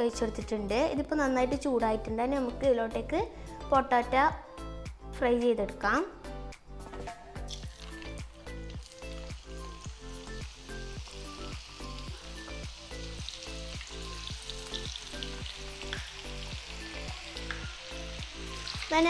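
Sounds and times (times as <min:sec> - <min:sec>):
oil sizzling in frying pan: 0:07.5 - 0:19.0.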